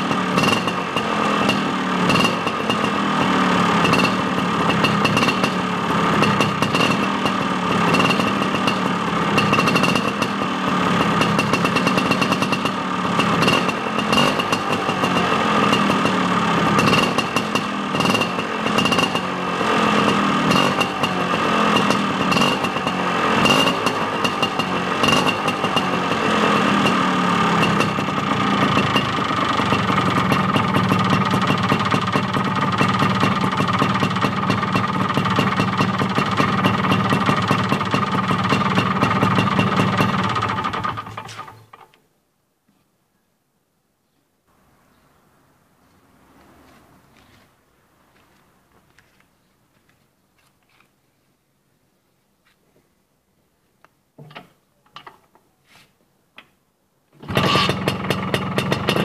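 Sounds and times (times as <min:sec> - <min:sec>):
scooter engine idling: 0:00.0 - 0:41.9, 0:57.2 - 0:59.0.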